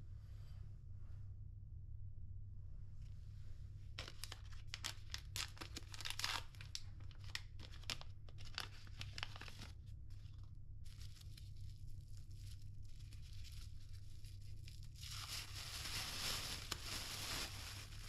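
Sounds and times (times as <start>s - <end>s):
low steady hum: 0.0s - 18.0s
paper sachet tearing and crinkling: 4.0s - 18.0s.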